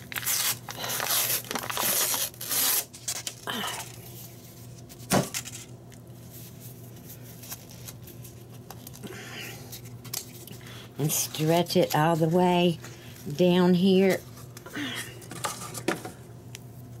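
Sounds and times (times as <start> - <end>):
paper packaging rustling and tearing: 0.0 - 13.4
low steady hum: 0.0 - 17.0.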